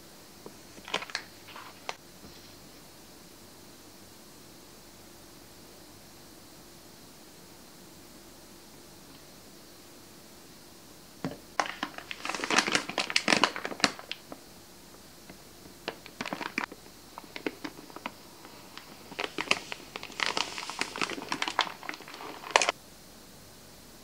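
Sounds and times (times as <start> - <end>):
plastic bag crinkling: 0.8 - 2.0, 11.6 - 14.4, 15.8 - 22.7.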